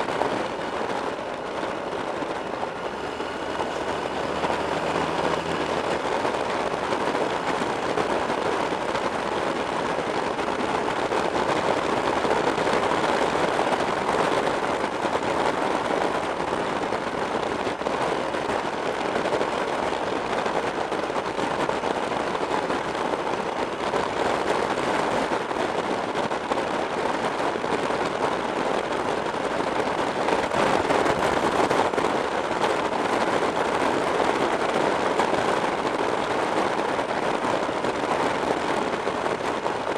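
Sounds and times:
motorcycle running: 0.0s - 39.9s
wind rush on camera: 0.0s - 39.9s.

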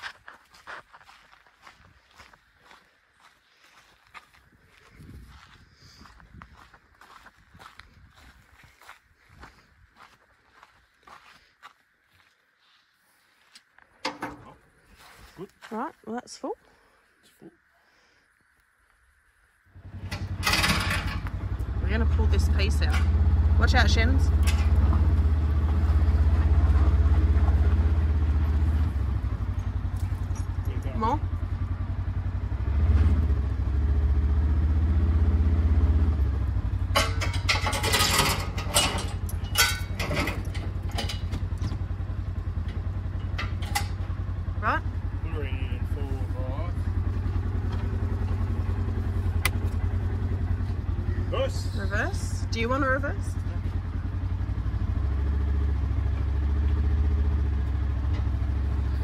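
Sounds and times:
engine running: 19.6s - 59.0s
sharp metallic clanks: 20.0s - 21.4s, 23.9s - 25.1s, 36.8s - 41.8s, 42.6s - 44.2s.

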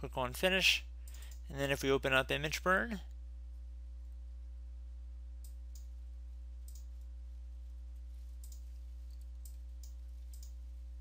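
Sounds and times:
low electrical hum: 0.0s - 11.0s
computer mouse clicks: 6.6s - 7.0s, 8.4s - 10.6s.

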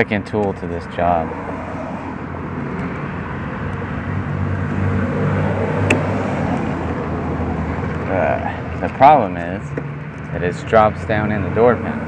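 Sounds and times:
low vehicle rumble: 0.1s - 12.0s.

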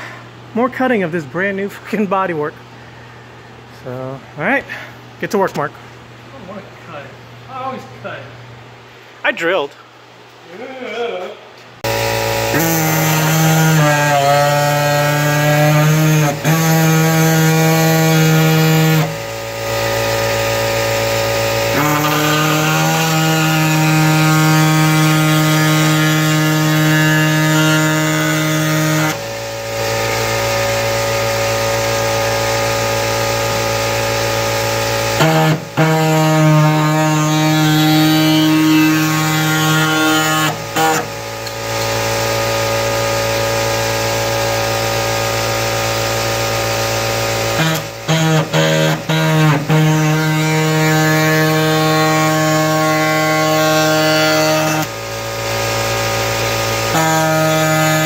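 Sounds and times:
power tool cutting steel: 11.8s - 58.0s.

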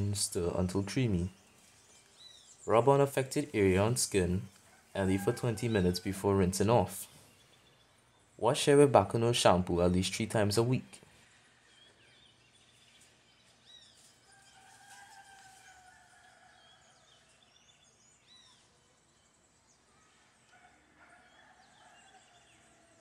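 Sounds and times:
small birds chirping: 0.0s - 23.0s
rooster crowing: 4.7s - 6.5s, 14.2s - 17.5s, 20.4s - 23.0s.

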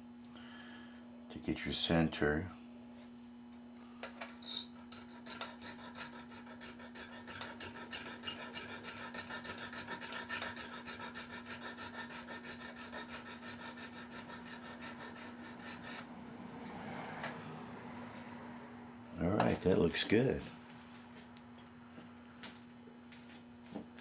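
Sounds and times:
hand file rasping on metal: 4.6s - 16.2s.

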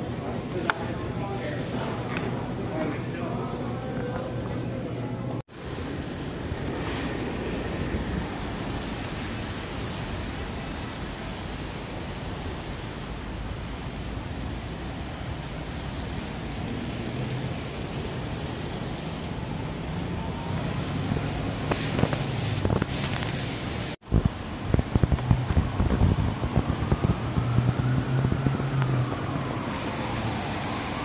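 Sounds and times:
tyre hiss on wet road: 5.5s - 19.4s, 20.4s - 24.1s
car engines humming: 5.6s - 31.0s.

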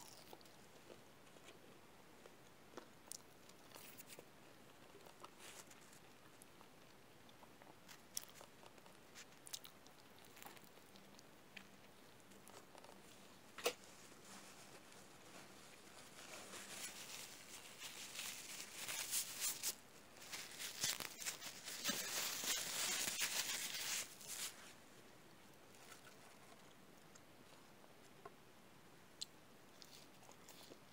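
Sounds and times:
crunching and crackling: 2.7s - 24.7s
person chewing a burger: 7.3s - 13.1s, 29.8s - 30.9s.

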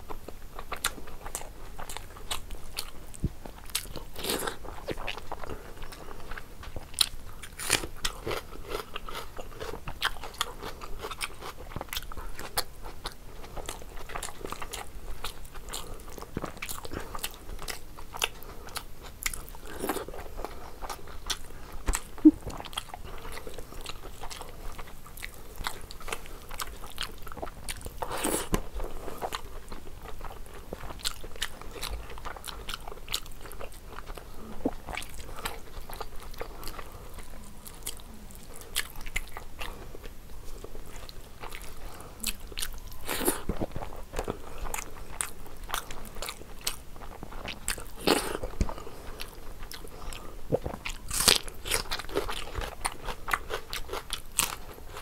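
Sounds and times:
person chewing: 0.0s - 55.0s.

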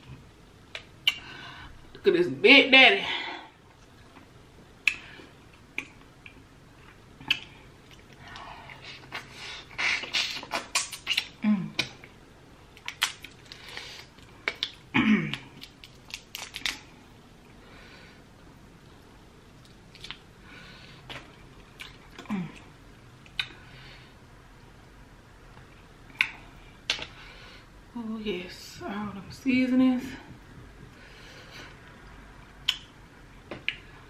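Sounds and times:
shrimp shell peeled by hand: 15.6s - 16.8s.

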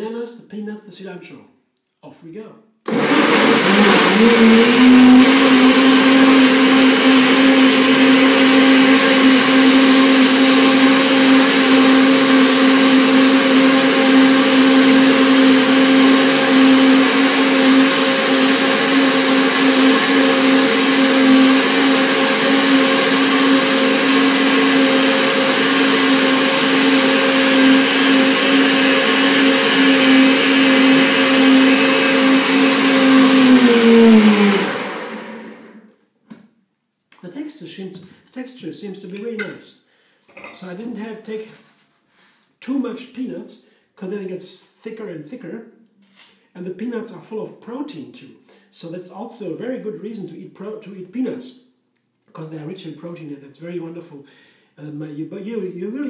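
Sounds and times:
blender running: 2.9s - 35.9s.

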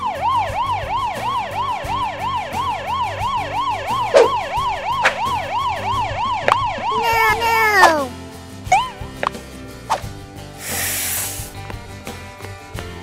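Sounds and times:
cartoon ambulance siren: 0.0s - 8.1s.

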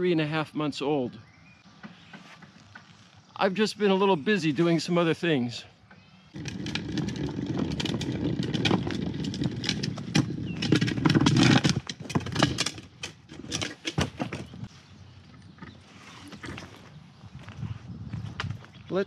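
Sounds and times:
knocks and clatters: 6.4s - 14.7s
plastic bin wheels rumbling on pavement: 6.4s - 14.7s.

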